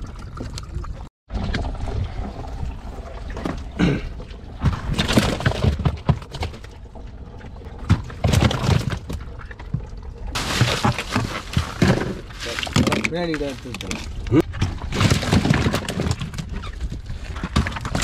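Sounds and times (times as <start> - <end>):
fish and ice knocking and crunching: 3.3 - 18.0
ice pouring from a sack: 10.4 - 13.8.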